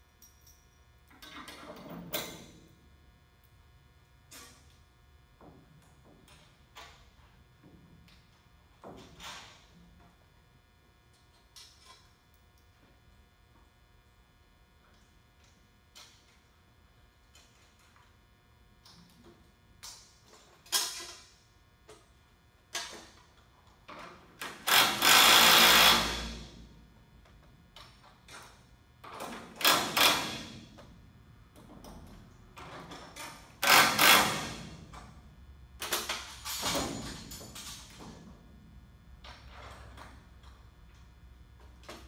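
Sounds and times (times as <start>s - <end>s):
power drill bursts: 24.7s - 26.4s, 33.6s - 34.5s.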